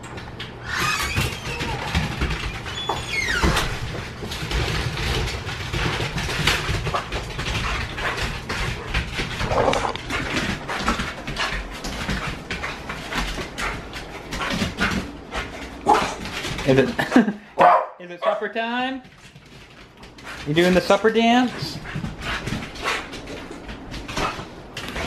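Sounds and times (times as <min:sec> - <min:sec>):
dog claws clicking on tiles: 0:00.0 - 0:17.3
dog squealing: 0:00.6 - 0:02.1, 0:02.7 - 0:03.6.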